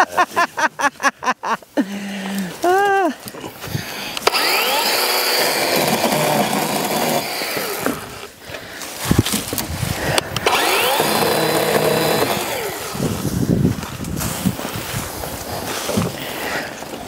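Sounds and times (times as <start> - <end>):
chainsaw cutting branches: 4.1 - 13.5.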